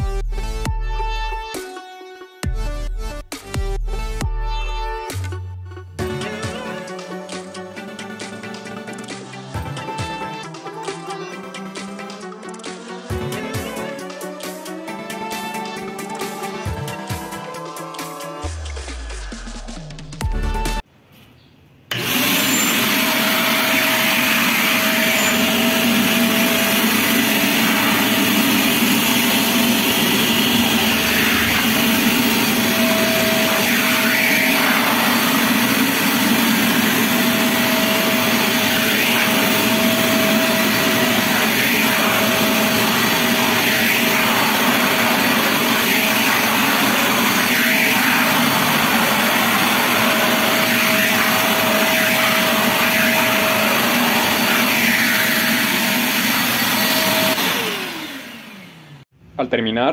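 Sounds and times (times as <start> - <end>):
shop vacuum running: 13.1 - 19.8, 21.9 - 59.1.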